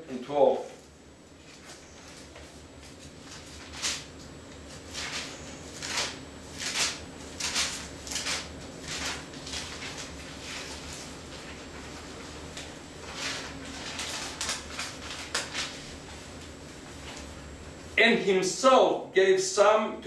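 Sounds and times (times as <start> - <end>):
thin pages turning: 1.4 - 17.3.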